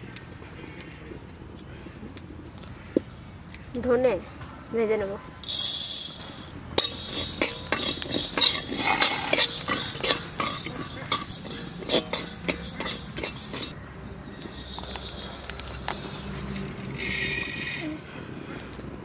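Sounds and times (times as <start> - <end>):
metal spatula scraping in wok: 5.4 - 18.0.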